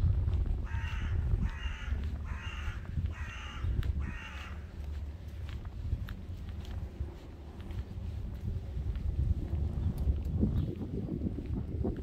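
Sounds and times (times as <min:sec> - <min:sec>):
low rumble: 0:00.0 - 0:12.0
crow cawing: 0:00.6 - 0:04.7.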